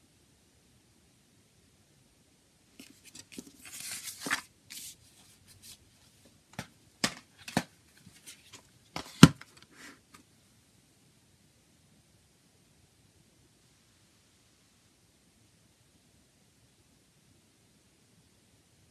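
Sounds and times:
paper and card rustling: 2.8s - 10.2s.

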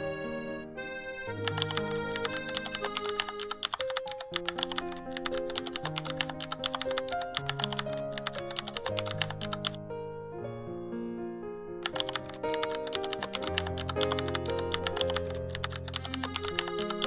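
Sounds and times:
rapid keyboard typing clicks: 1.4s - 9.8s, 11.8s - 17.0s
gentle background music: 11.4s - 17.0s.

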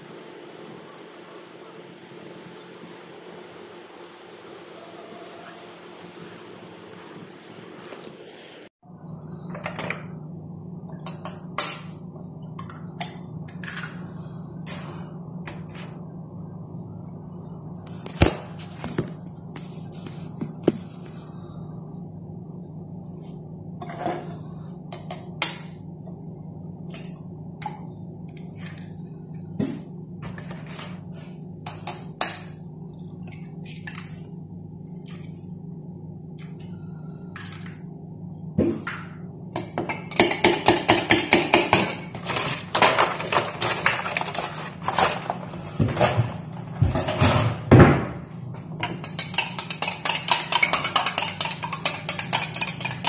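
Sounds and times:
steady low hum: 0.0s - 53.0s
eggs cracking on steel tumbler: 48.8s - 53.0s.

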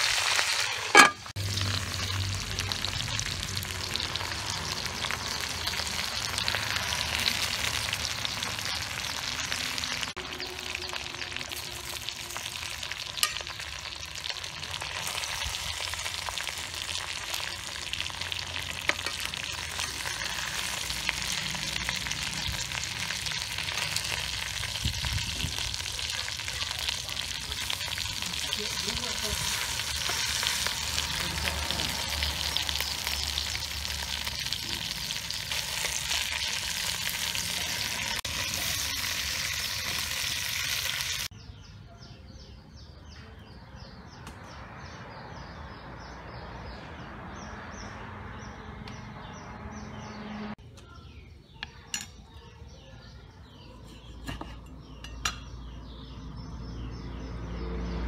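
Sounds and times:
food sizzling in a pot: 0.0s - 41.3s
metal tongs stirring: 0.7s - 1.3s.

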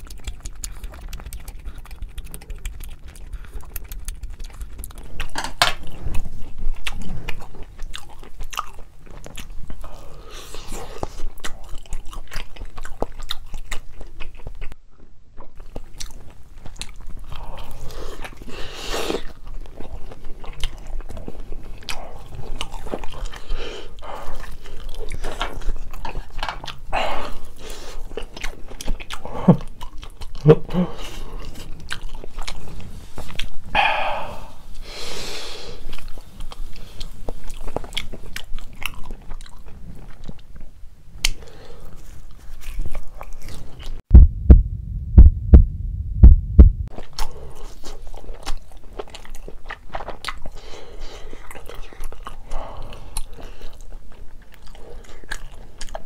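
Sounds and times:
wet mouth clicks and smacks: 0.0s - 5.8s
close chewing and biting: 0.0s - 34.6s, 35.6s - 44.0s, 46.9s - 56.0s.

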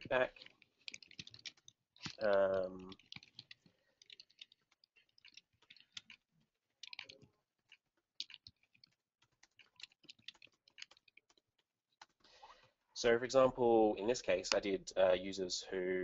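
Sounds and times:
typing on computer keyboard: 0.0s - 6.2s, 6.8s - 12.3s.

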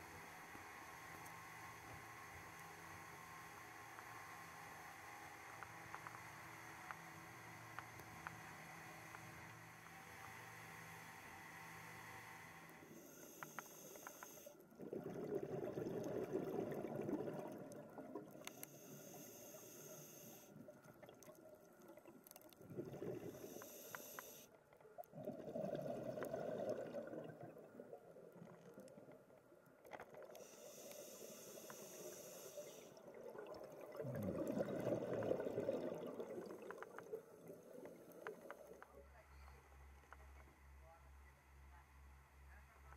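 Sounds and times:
regulator inhale hiss: 11.8s - 14.6s, 18.5s - 20.5s, 23.3s - 24.5s, 30.4s - 32.9s
exhaled bubbles rumbling: 14.7s - 18.4s, 22.0s - 23.4s, 25.1s - 29.1s, 33.0s - 38.7s.

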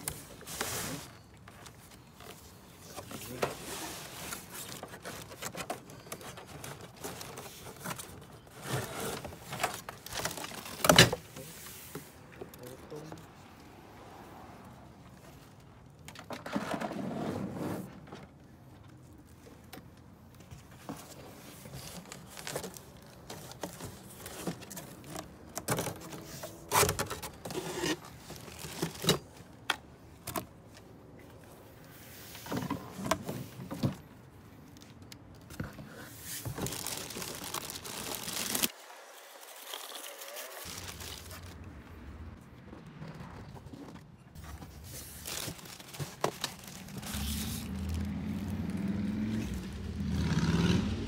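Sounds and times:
cardboard rustling: 0.0s - 12.7s, 20.1s - 30.8s, 34.8s - 41.8s, 43.4s - 48.8s
plastic wrapping crinkling: 36.2s - 38.8s, 39.4s - 41.6s, 44.4s - 48.8s.

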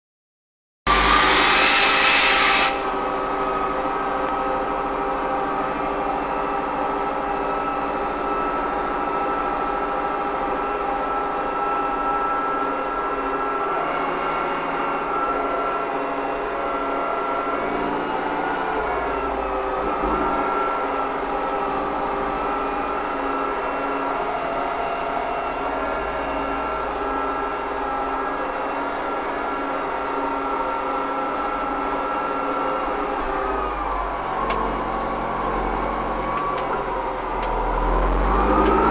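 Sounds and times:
loud hiss: 0.9s - 2.9s
tractor diesel engine droning: 0.9s - 38.9s.

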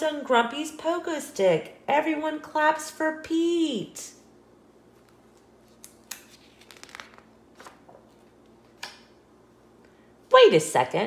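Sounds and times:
paper page rustling: 4.9s - 8.8s.

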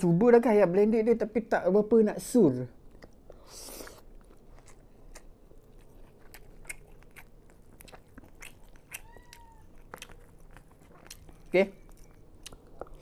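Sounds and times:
chewing with faint clicks: 2.8s - 13.0s
crunch of biting food: 3.4s - 13.0s.

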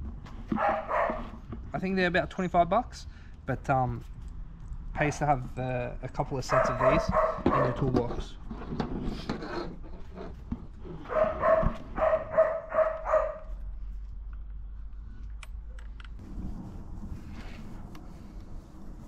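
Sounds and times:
dog barking: 0.5s - 1.3s, 6.5s - 7.8s, 11.1s - 13.5s.

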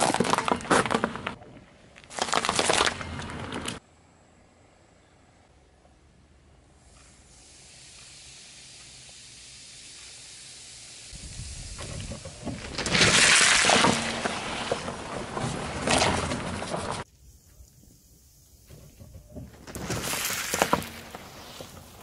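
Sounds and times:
rough spattering: 12.6s - 17.0s.

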